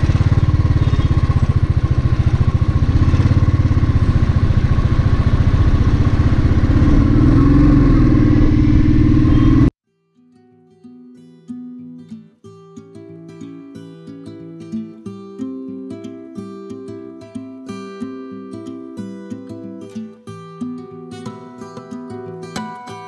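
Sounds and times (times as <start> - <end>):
motorcycle engine running: 0.0 - 9.7.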